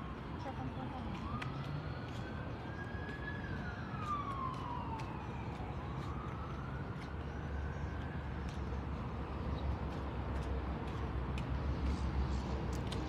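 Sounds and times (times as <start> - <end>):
siren wailing: 0.0 - 9.2.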